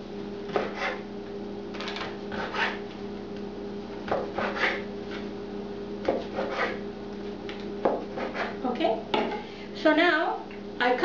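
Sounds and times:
steady low hum: 0.0s - 11.0s
knife sawing onto cutting board: 0.5s - 1.0s, 2.3s - 2.8s, 4.2s - 4.9s, 6.2s - 6.8s, 8.1s - 8.6s.

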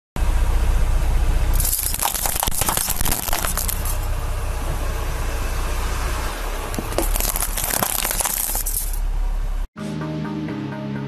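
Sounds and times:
low engine hum: 0.2s - 9.7s
plastic cutlery cracking under tyre: 1.6s - 4.0s, 6.7s - 9.0s.

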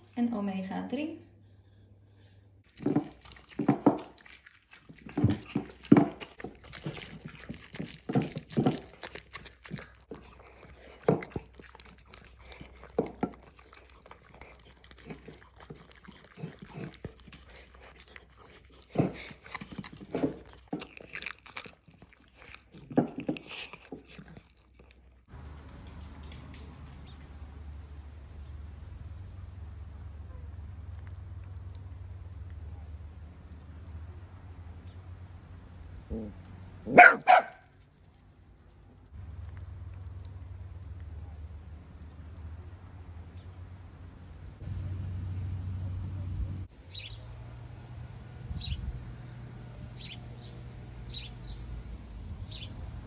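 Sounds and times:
dogs chewing wetly: 2.6s - 34.0s, 37.0s - 42.8s
steady low hum: 39.1s - 46.7s.

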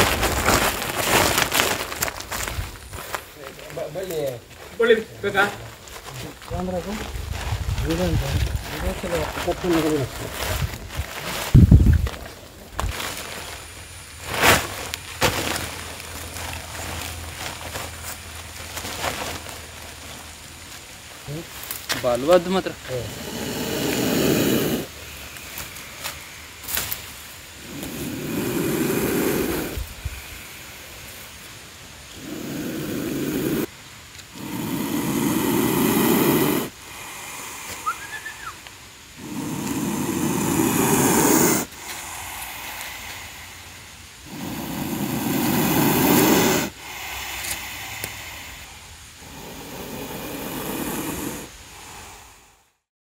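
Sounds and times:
snake hissing: 21.0s - 52.9s.

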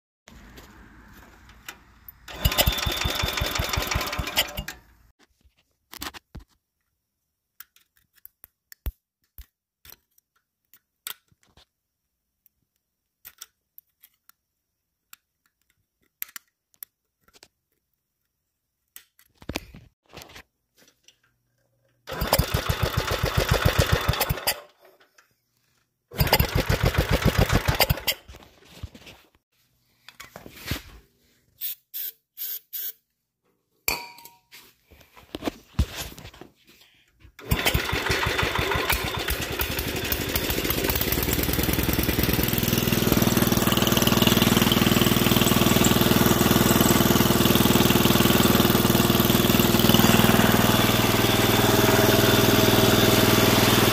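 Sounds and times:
tractor engine cranking: 1.5s - 5.1s, 22.0s - 24.9s, 26.2s - 28.3s, 37.4s - 53.9s.

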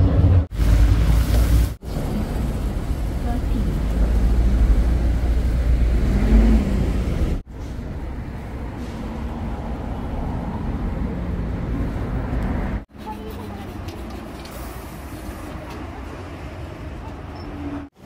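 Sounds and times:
traffic rumble: 0.0s - 18.0s
people talking: 3.2s - 4.2s, 13.0s - 14.3s.

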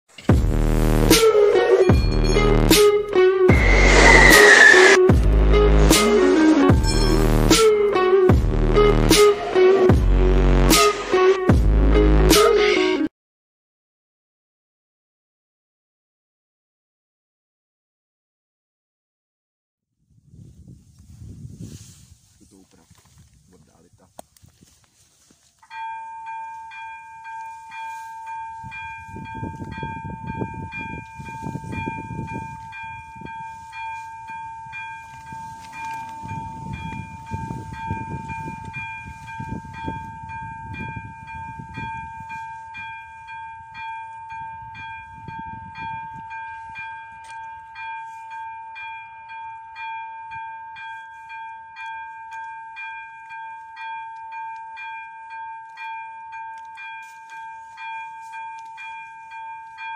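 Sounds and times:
level crossing electronic bell ringing: 1.6s - 2.7s, 6.8s - 7.4s.

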